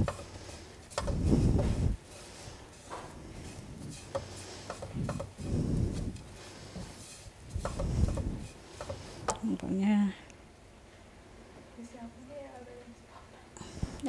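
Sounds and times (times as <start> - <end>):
spatula scraping oatmeal in pan: 0.0 - 9.4.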